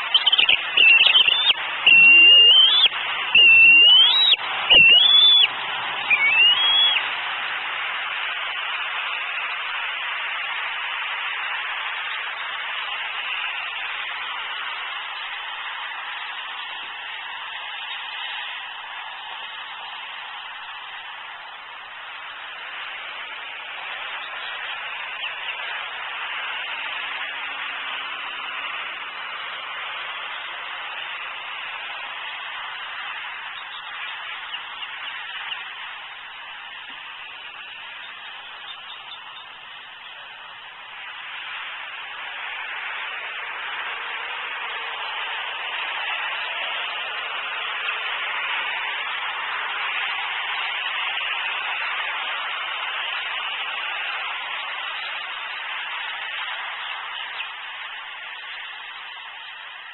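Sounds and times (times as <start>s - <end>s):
steady hiss: 0.0s - 59.9s
young eagle begging squeals: 0.1s - 7.0s.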